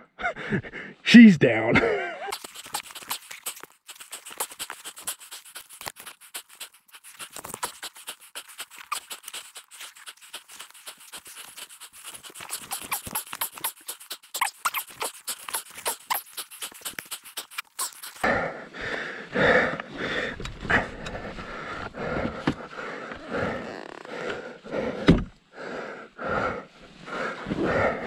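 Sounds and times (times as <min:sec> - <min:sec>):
person breathing hard: 0:00.0 - 0:01.0, 0:03.9 - 0:14.3, 0:16.3 - 0:28.0
irregular crunching and clicking: 0:02.3 - 0:18.3.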